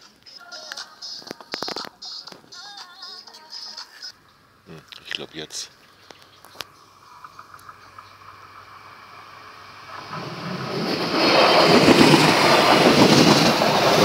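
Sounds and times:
passenger train passing: 5.3s - 14.0s.

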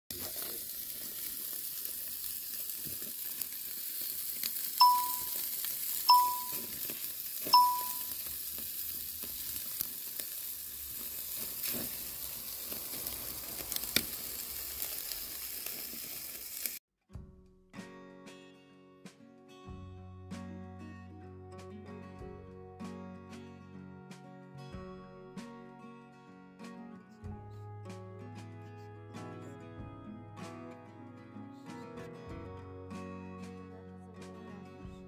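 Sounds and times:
meat sizzling on a charcoal grill: 0.1s - 16.8s
short bright dings: 4.8s - 5.4s, 6.1s - 6.7s, 7.5s - 8.1s.

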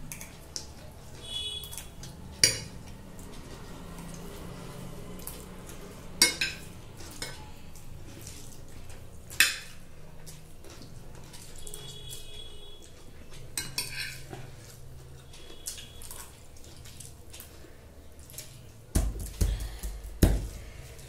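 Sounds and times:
cutlery scraping on glass plates: 13.6s - 14.4s.

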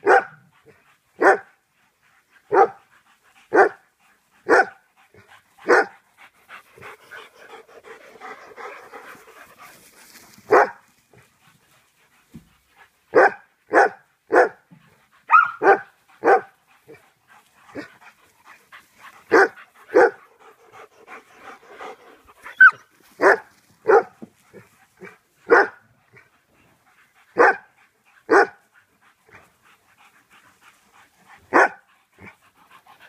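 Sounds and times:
dog barking: 0.0s - 0.4s, 1.2s - 1.5s, 2.5s - 2.8s, 3.5s - 3.8s, 4.5s - 4.8s, 5.6s - 6.0s, 10.5s - 10.8s, 13.1s - 14.6s, 15.3s - 16.5s, 19.3s - 20.2s, 22.5s - 24.2s, 25.0s - 25.8s, 27.4s - 27.7s, 28.3s - 28.6s, 31.5s - 31.9s
dog panting: 0.5s - 13.6s, 14.6s - 33.0s
dog yipping: 15.3s - 16.4s, 22.4s - 24.1s.

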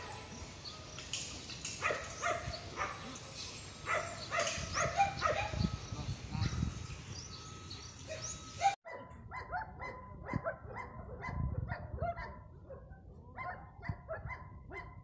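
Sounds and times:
dog barking: 1.8s - 3.2s, 3.9s - 5.6s, 8.1s - 15.0s.

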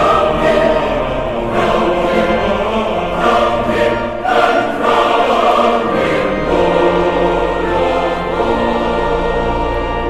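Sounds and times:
choir singing: 0.0s - 10.0s.

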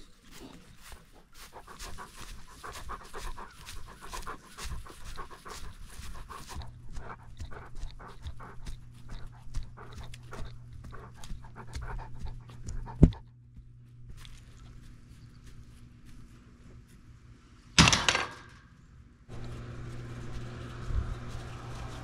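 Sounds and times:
dog panting and sniffing: 0.0s - 16.3s
low steady hum: 0.0s - 22.0s.

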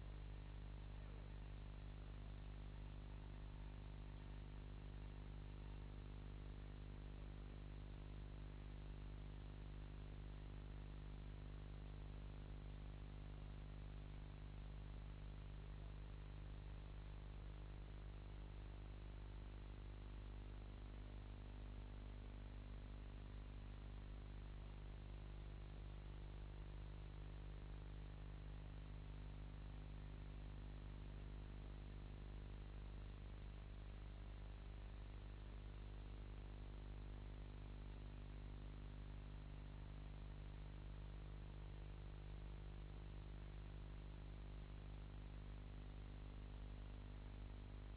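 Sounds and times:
faint high whine: 0.0s - 47.9s
low electrical hum with hiss: 0.0s - 47.9s.

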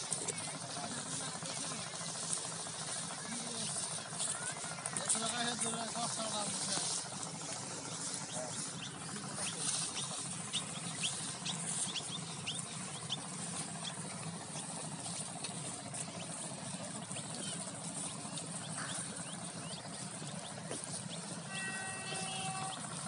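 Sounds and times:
hoe scraping dry soil: 0.0s - 23.0s
brief held multi-pitch note: 21.5s - 22.8s.

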